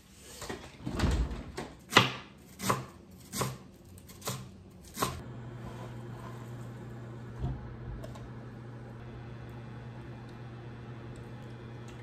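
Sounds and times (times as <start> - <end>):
knife chopping cabbage on board: 1.9 - 5.2.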